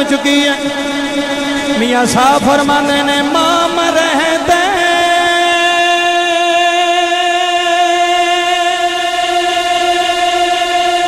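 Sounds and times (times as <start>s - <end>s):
man singing a long note: 0.0s - 11.0s.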